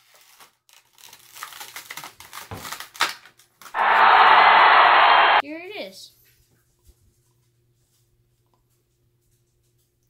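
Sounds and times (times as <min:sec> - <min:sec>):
loud steady hiss: 0:03.8 - 0:05.4.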